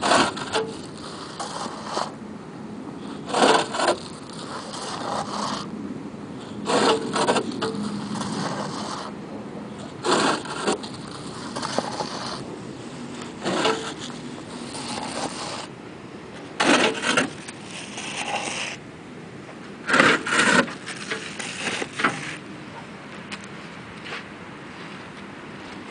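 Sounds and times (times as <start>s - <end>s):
mud bricks scraping and knocking: 0.0s - 2.2s, 3.2s - 5.7s, 6.6s - 9.1s, 9.9s - 12.5s, 13.2s - 15.7s, 16.5s - 18.8s, 19.8s - 22.4s.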